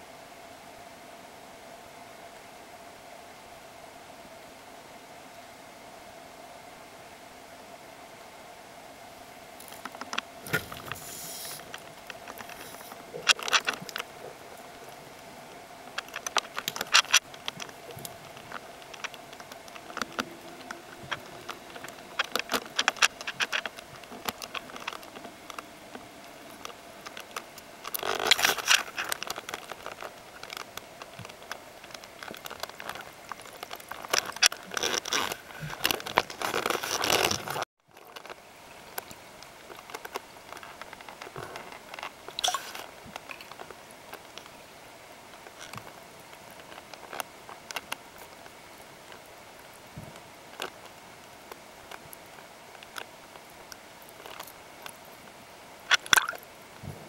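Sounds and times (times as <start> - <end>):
underwater crackle of clicks: 15.9 - 38.2, 38.9 - 44.6, 55.9 - 56.5.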